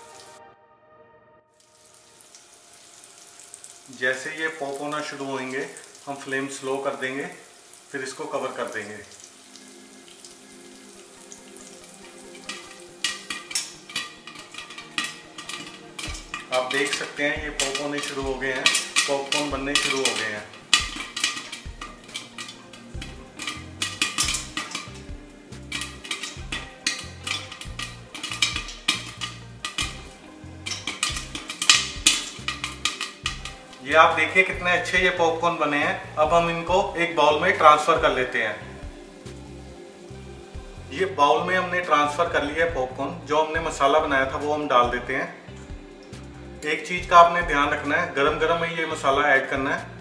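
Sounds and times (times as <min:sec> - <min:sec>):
kernels sizzling in oil: 0:00.0 - 0:00.4, 0:01.6 - 0:50.0
popcorn popping under lid: 0:11.7 - 0:35.2.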